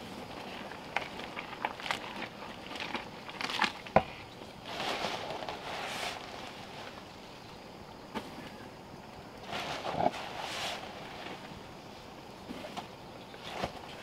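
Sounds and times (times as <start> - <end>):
paddle swishing through mash: 4.7 - 6.8.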